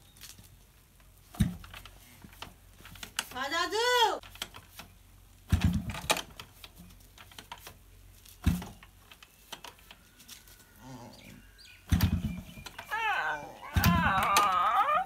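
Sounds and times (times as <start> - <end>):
motorcycle kick-start thumps: 5.5 - 6.4, 11.8 - 12.8.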